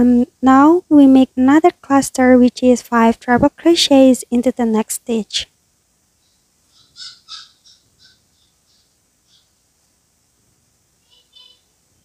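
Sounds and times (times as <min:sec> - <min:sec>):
faint room hiss: 0:00.0 - 0:12.0
faint high chirp: 0:11.0 - 0:11.8.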